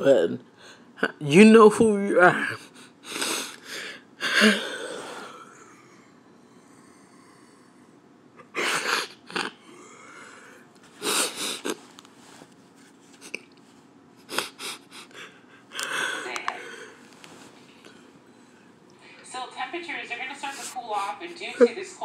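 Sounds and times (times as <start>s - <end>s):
woman sniffing and breathing hard: 8.5s - 12.4s, 14.2s - 17.5s.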